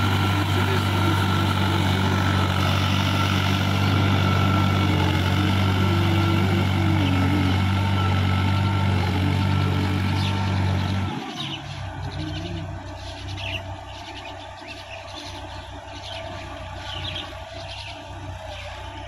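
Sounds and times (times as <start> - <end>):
birds chirping: 0.0 - 19.0
rotary tiller churning mud and water: 0.0 - 19.0
tractor diesel engine running: 0.0 - 19.0.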